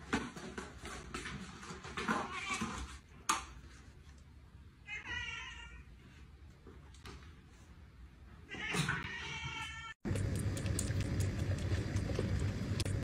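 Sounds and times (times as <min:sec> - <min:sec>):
cat meowing: 0:04.9 - 0:05.9, 0:08.5 - 0:10.0.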